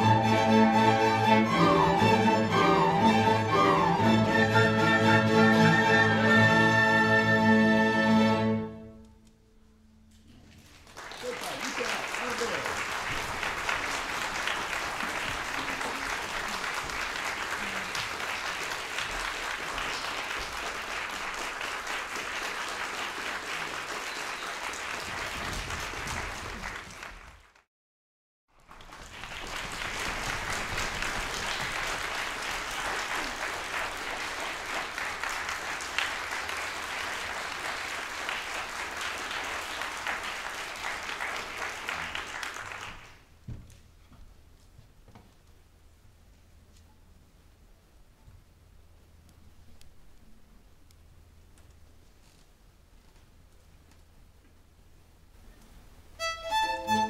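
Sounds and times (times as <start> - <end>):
audience applauding: 10.6 - 27.7, 28.5 - 43.3.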